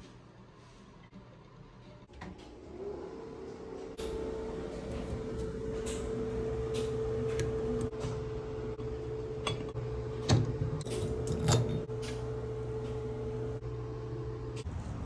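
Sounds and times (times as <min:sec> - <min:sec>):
steady hum: 0:00.0 - 0:14.7.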